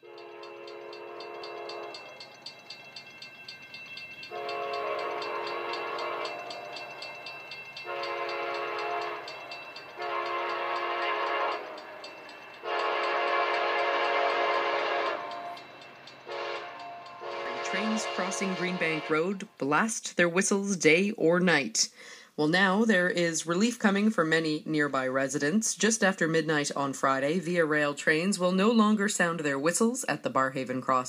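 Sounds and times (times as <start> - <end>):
locomotive air horn blasts: 0.0 - 2.0, 4.3 - 6.6, 7.8 - 9.3, 10.0 - 11.9, 12.6 - 15.6, 16.3 - 19.4.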